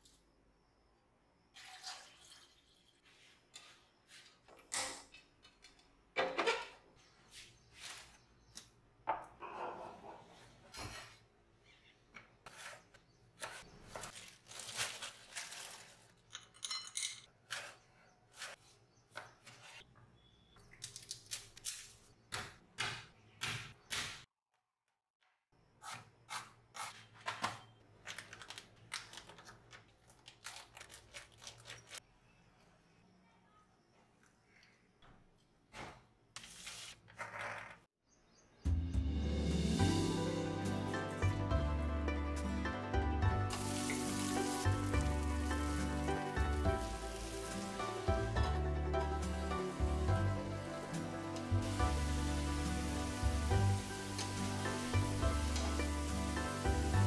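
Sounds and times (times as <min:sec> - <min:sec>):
plastic bag crinkling: 0:14.1 - 0:16.4, 0:28.0 - 0:32.0.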